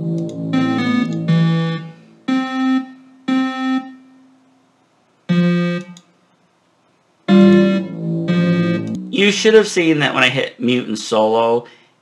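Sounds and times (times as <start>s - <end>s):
piano and synth notes: 0.0s - 4.5s, 5.3s - 6.0s, 7.3s - 9.6s.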